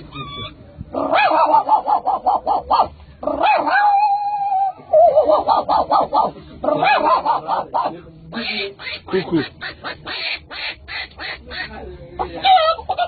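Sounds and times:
man imitating dog barks: 0:06.7 - 0:07.9.

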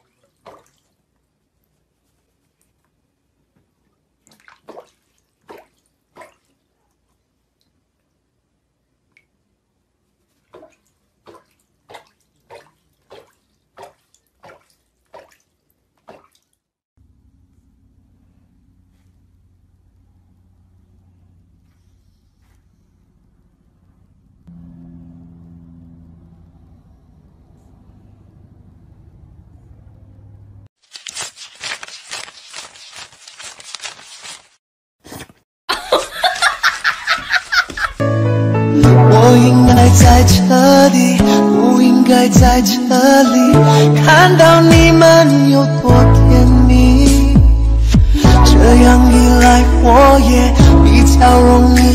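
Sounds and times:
duck splashing in water: 0:00.0 - 0:01.0, 0:04.2 - 0:06.6, 0:10.3 - 0:16.6
person laughing: 0:35.7 - 0:38.0.

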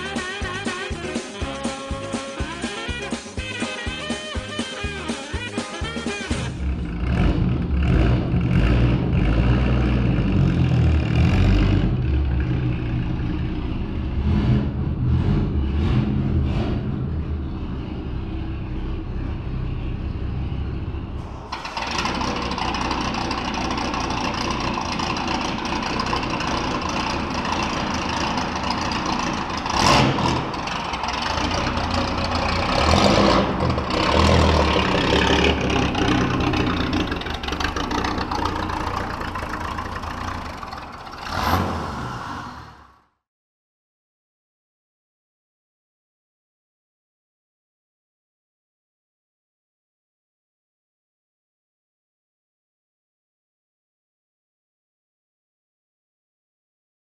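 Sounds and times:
engine revving sharply: 0:06.0 - 0:43.2
car engine running: 0:06.3 - 0:42.2.

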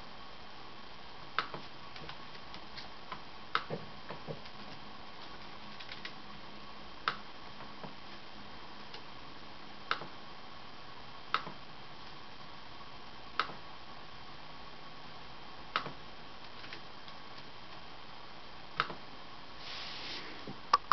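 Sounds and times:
faint hiss: 0:19.5 - 0:20.6.

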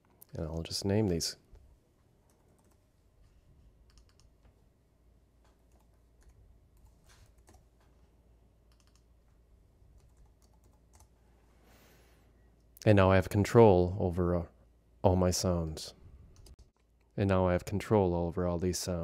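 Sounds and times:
faint keyboard typing: 0:00.0 - 0:04.6, 0:05.4 - 0:11.2, 0:16.3 - 0:17.2.

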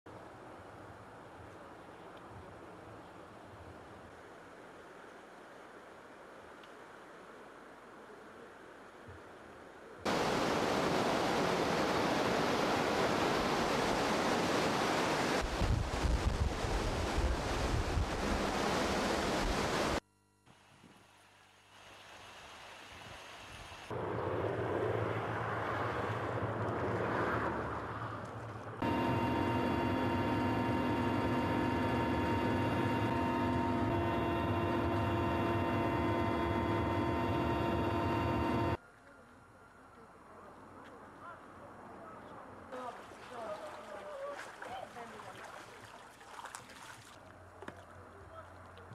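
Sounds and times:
river rushing: 0:10.1 - 0:20.0
wind buffeting microphone: 0:15.4 - 0:19.7
helicopter engine and rotor drone: 0:28.8 - 0:38.8
high whine: 0:28.8 - 0:38.8.

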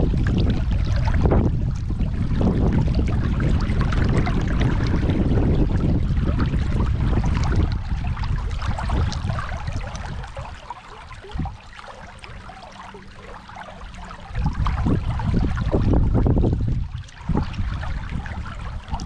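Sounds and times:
river water rushing: 0:08.7 - 0:15.7.

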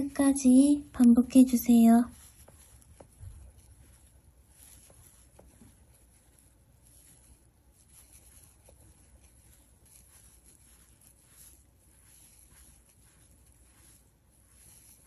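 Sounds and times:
yarn rustling: 0:00.0 - 0:15.0.

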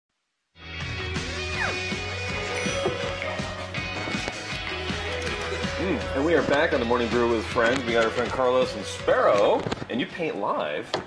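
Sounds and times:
instrumental theme music: 0:00.6 - 0:09.4.

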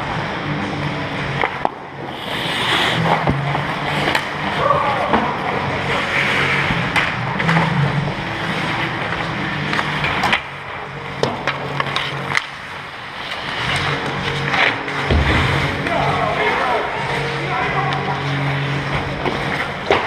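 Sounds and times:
sticks and puck clacking: 0:01.2 - 0:20.0
skate blades scraping ice: 0:01.4 - 0:20.0.

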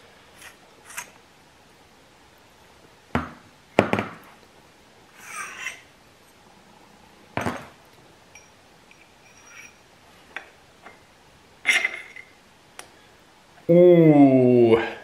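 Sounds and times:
metal sleeve scraping rattle: 0:05.2 - 0:05.9, 0:08.4 - 0:09.9, 0:11.6 - 0:12.4
metal parts clinking: 0:08.3 - 0:09.9, 0:11.6 - 0:12.4.

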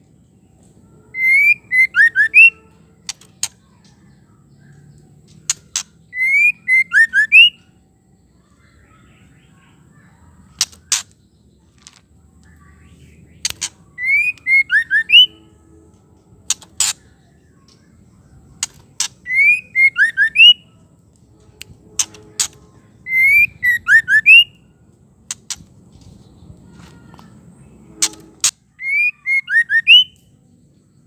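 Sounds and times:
bird whistling rising notes: 0:01.1 - 0:02.6, 0:06.1 - 0:07.6, 0:14.0 - 0:15.5, 0:19.2 - 0:20.6, 0:23.0 - 0:24.6, 0:28.7 - 0:30.2
sharp bird clicking notes: 0:01.2 - 0:04.0, 0:05.2 - 0:07.6, 0:10.5 - 0:11.2, 0:13.3 - 0:15.3, 0:16.4 - 0:17.8, 0:18.6 - 0:20.5, 0:21.1 - 0:24.4, 0:25.3 - 0:25.8, 0:28.0 - 0:28.6.

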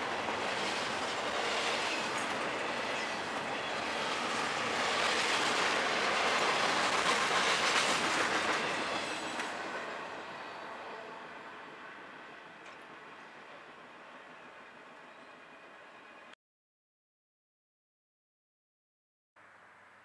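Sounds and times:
train wheels clattering on rail: 0:00.0 - 0:10.1.

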